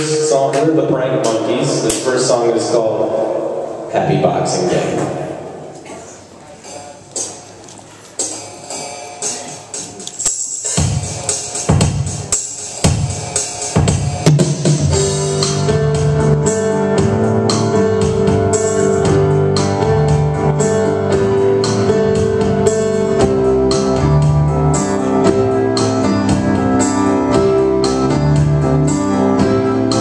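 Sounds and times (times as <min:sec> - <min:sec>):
electric keyboard chords: 0:00.0 - 0:30.0
steady drum beat: 0:09.2 - 0:20.5, 0:21.1 - 0:29.9.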